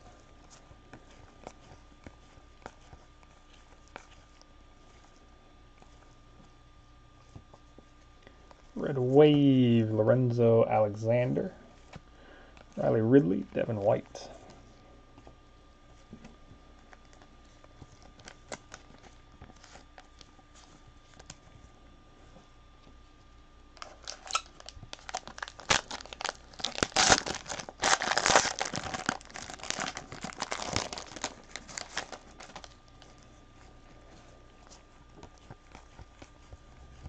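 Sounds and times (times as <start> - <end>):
wrapper tearing and crumpling: 23.8 - 33.2.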